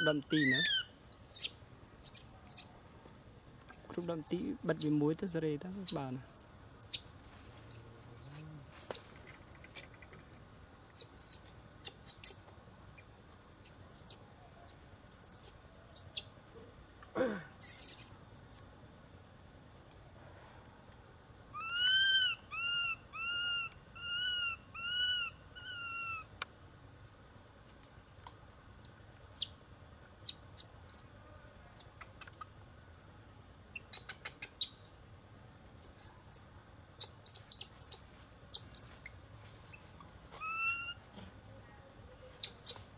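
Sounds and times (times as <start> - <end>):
monkey squeaking chirps: 0.0 - 2.7, 3.9 - 9.0, 10.9 - 12.4, 13.6 - 16.3, 17.5 - 18.6, 21.6 - 26.3, 28.8 - 29.6, 33.7 - 35.0, 35.8 - 36.4, 37.0 - 39.2, 40.4 - 41.0, 42.3 - 42.9
monkey whistled calls: 0.0 - 2.7, 4.0 - 9.0, 17.5 - 18.1, 21.5 - 26.3, 40.4 - 41.0.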